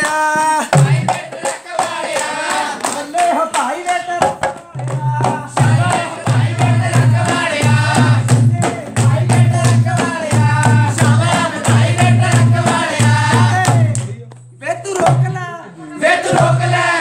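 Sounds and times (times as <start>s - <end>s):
hand clapping: 0.0s - 6.2s
drum beat: 0.0s - 17.0s
women singing: 5.2s - 8.4s, 9.0s - 13.6s, 15.8s - 17.0s.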